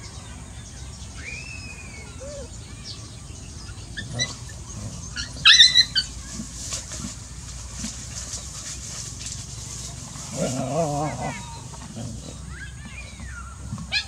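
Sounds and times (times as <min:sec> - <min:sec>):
puppy yelps: 0:02.2 - 0:02.5, 0:05.2 - 0:06.1, 0:12.5 - 0:14.0
puppies play-fighting: 0:03.6 - 0:14.0.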